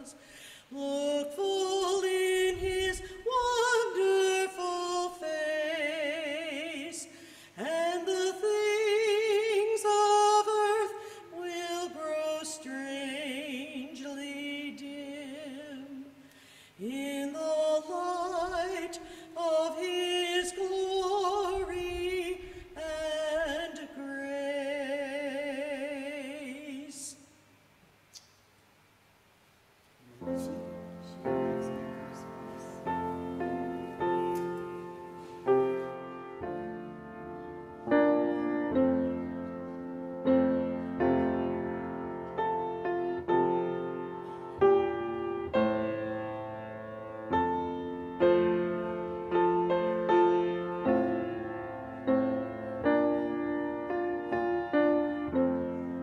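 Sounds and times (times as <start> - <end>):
person singing unaccompanied: 0.0 - 16.2, 16.8 - 27.2.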